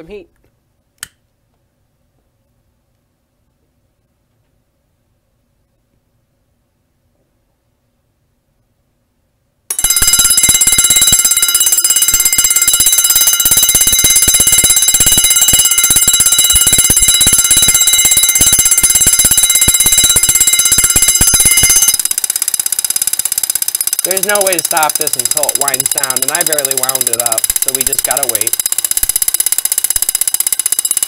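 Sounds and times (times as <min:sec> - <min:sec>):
alarm disc popping: 0:09.7 - 0:22.3, 0:23.9 - 0:30.2
fire alarm bell ringing: 0:09.7 - 0:23.2, 0:23.8 - 0:31.0.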